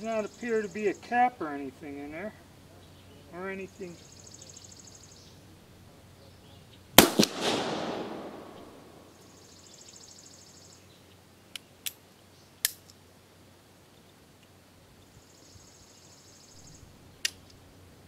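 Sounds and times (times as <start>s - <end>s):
revolver gunshot with echo: 7.0s - 9.1s.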